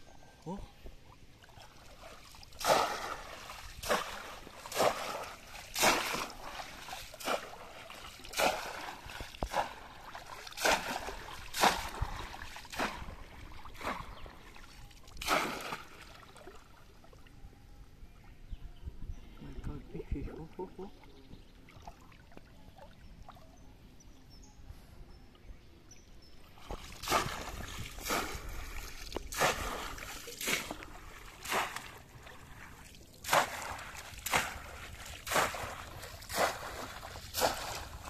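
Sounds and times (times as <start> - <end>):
fish trap splashing in river: 1.4 - 16.8, 26.6 - 38.0.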